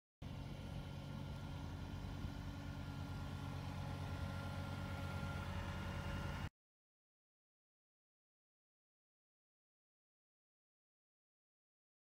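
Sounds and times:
tractor diesel engine running: 0.2s - 6.5s.

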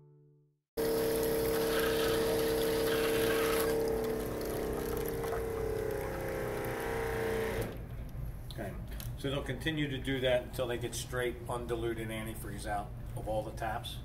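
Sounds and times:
liquid pouring into plastic bucket: 0.8s - 7.7s
electric pump humming: 0.8s - 8.0s.

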